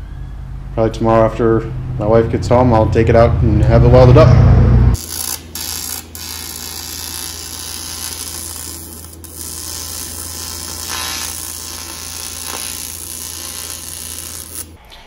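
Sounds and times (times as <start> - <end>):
arc welding buzzing hum: 4.9 - 14.8.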